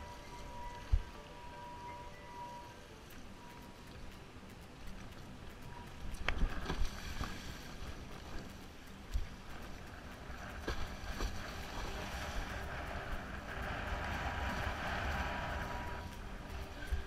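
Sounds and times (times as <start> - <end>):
wind buffeting microphone: 5.6 - 17.0.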